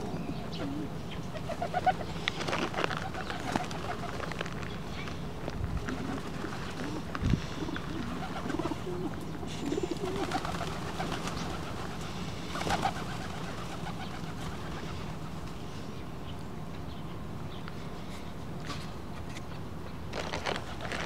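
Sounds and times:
pigeons cooing: 0.0s - 5.2s, 5.8s - 15.9s
pigeon wingbeats: 1.3s - 4.7s, 5.8s - 15.6s.

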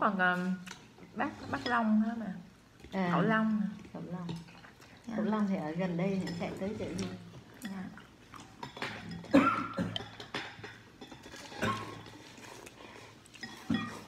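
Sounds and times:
utensils clinking on porcelain bowls: 0.7s - 2.2s, 5.2s - 12.6s, 13.3s - 14.0s
noodles being slurped: 11.2s - 14.0s.

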